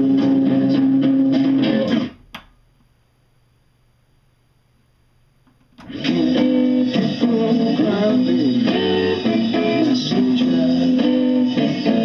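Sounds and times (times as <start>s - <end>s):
guitar music from record player: 0.0s - 2.3s, 5.8s - 12.0s.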